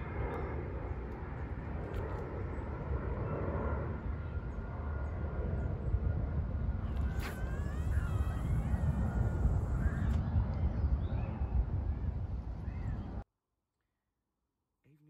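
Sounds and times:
faint thin whine: 0:00.0 - 0:10.6
wind rumbling on microphone: 0:00.0 - 0:13.2.

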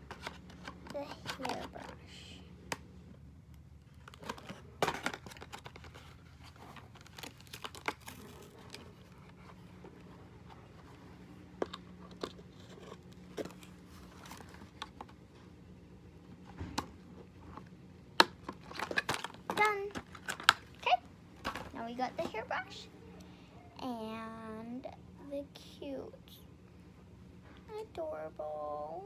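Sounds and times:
faint low hum: 0:00.0 - 0:29.0
cardboard packaging rummaged: 0:03.9 - 0:11.0.

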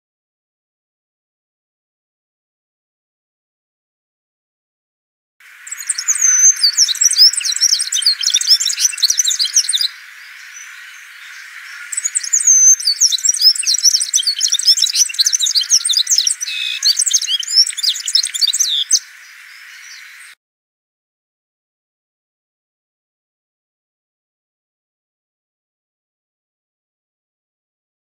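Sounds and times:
bird twittering and warbling: 0:05.4 - 0:20.4.

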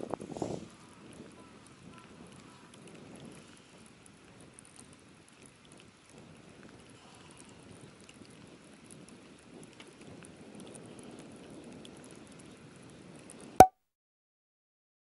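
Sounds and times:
light rain pattering on water: 0:00.0 - 0:13.6.

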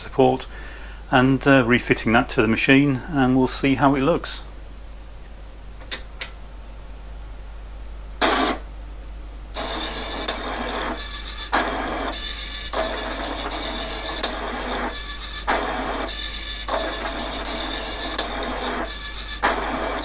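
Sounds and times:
switch clicks: 0:05.8 - 0:06.4
mechanical whirr of pen carriage: 0:09.6 - 0:20.0.

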